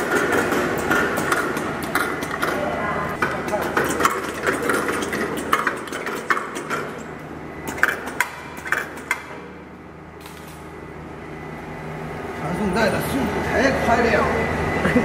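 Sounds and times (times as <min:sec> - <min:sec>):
machine hum: 0:00.0 - 0:15.0
metallic clacks and clinks: 0:03.3 - 0:07.1.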